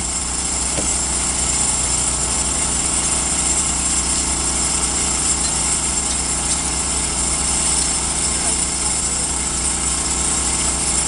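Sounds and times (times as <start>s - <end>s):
heavy engine idling: 0.0s - 11.0s.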